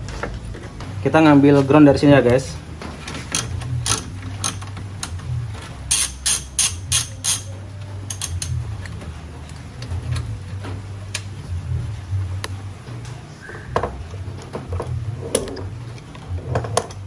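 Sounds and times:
ratchet wrench clicking: 3.3 - 5.2, 5.9 - 8.6.

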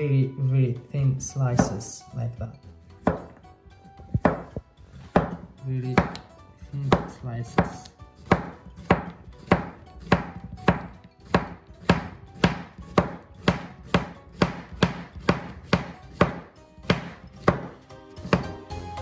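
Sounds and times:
knife knocking on cutting board: 1.6 - 1.8, 3.0 - 3.4, 4.2 - 6.3, 6.9 - 17.7.

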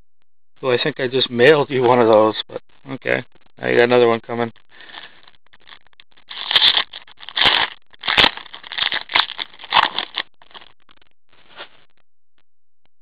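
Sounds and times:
foil wrapper crinkling and tearing: 4.8 - 10.8.

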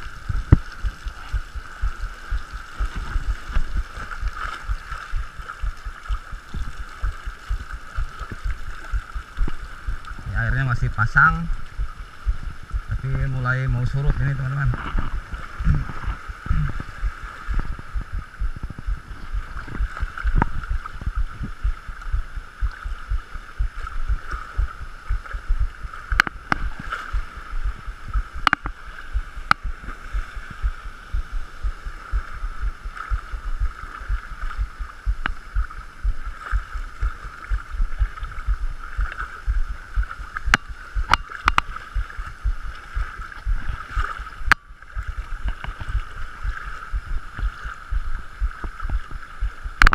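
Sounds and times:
seawater sloshing and gurgling: 0.0 - 49.9.

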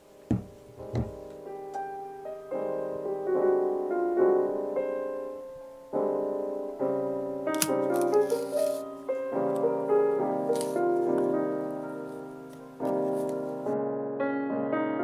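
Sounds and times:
gentle piano music: 0.0 - 15.0
soft low thud: 0.3 - 1.3.

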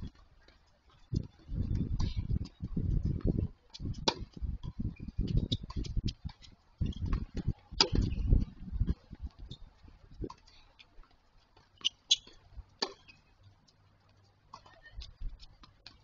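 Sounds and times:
wind buffeting microphone: 1.0 - 10.4
racket hitting tennis ball: 3.9 - 4.4, 7.2 - 8.2, 11.8 - 13.2.

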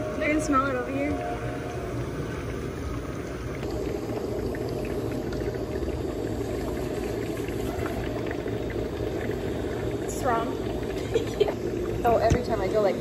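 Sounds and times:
water bubbling steadily: 0.0 - 13.0.

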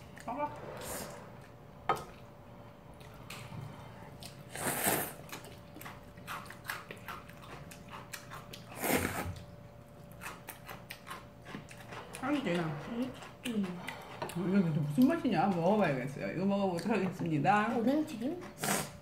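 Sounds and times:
wet chewing: 1.3 - 16.0
slurping noodles: 4.4 - 5.3, 8.7 - 9.4, 18.6 - 19.0.

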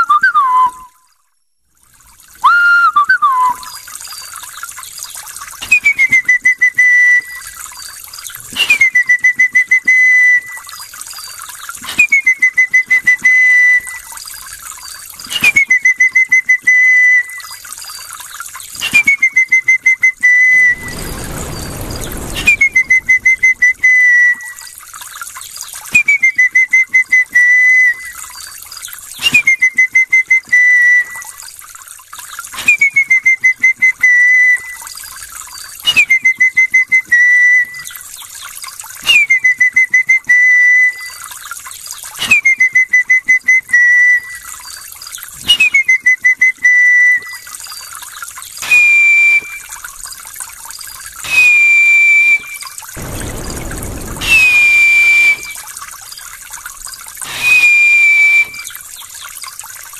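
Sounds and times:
person whistling bird call: 0.0 - 1.0, 2.4 - 3.8, 8.6 - 10.6, 35.9 - 37.9, 42.2 - 44.4, 45.5 - 47.5, 57.3 - 58.8
short high whistles: 8.5 - 10.6, 18.8 - 24.7, 48.6 - 49.7, 51.2 - 55.7, 57.2 - 58.8.

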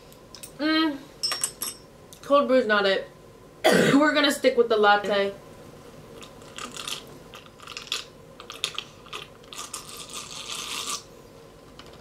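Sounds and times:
slurping through a straw: 6.3 - 11.1.

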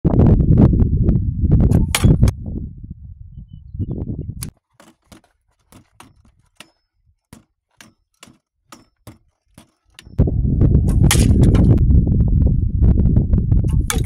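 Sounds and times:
wind rumble on microphone: 0.0 - 4.5, 10.1 - 14.0.

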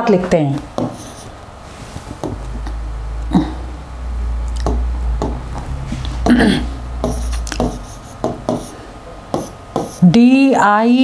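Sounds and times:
steady low hum: 0.0 - 11.0
person clearing throat: 3.2 - 3.8, 6.2 - 7.6
stylus tapping on touchscreen: 7.0 - 8.7.

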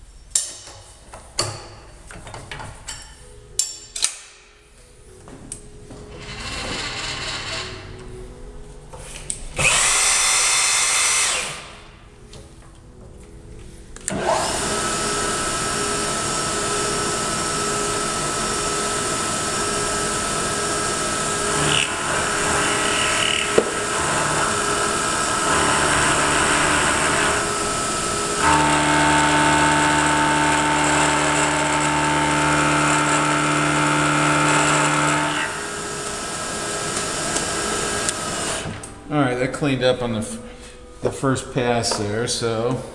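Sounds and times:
milling machine cutting metal: 14.1 - 38.7.

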